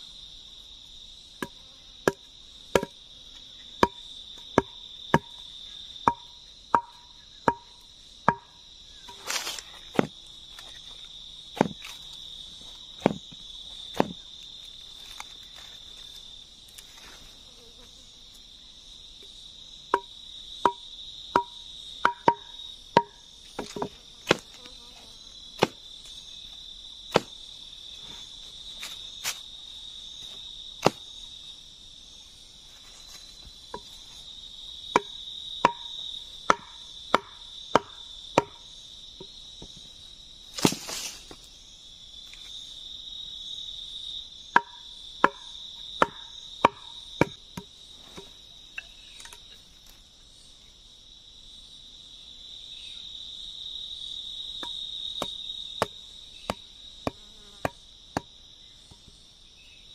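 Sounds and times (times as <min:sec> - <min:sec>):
wooden stakes knocked into ground: 0:09.1 - 0:10.8, 0:11.6 - 0:12.1, 0:13.0 - 0:14.2, 0:21.4 - 0:24.6, 0:27.1 - 0:27.4, 0:30.8 - 0:31.1, 0:40.5 - 0:41.5.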